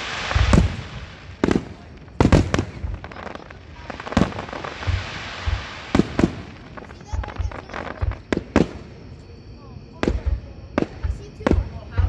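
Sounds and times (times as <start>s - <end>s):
sharp firework bangs: 0.0s - 8.9s
deep firework thumps: 0.0s - 9.1s, 10.0s - 12.0s
crackling hiss of fireworks: 0.0s - 12.0s.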